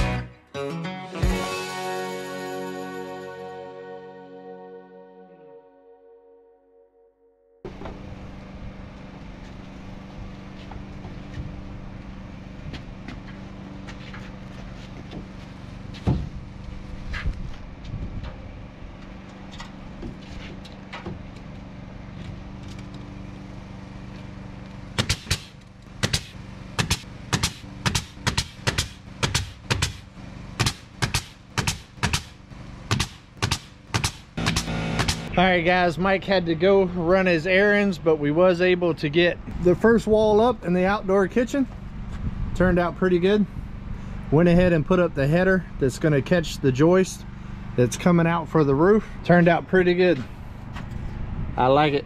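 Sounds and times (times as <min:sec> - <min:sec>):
machine engine running: 0:07.7 - 0:37.4
nail gun shooting into wood: 0:25.0 - 0:35.3.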